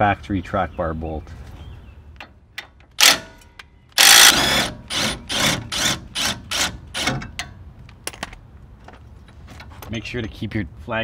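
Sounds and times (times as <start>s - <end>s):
impact wrench running: 3.0s - 3.3s, 4.0s - 7.2s
impact wrench short bursts: 3.0s - 3.4s, 4.0s - 7.4s.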